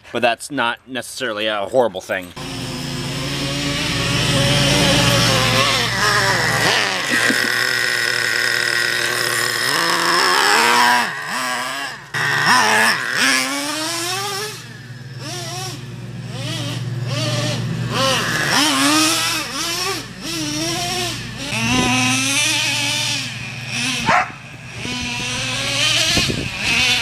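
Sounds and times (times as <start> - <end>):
man talking: 0.0 - 2.4
small engine revving: 2.4 - 27.0.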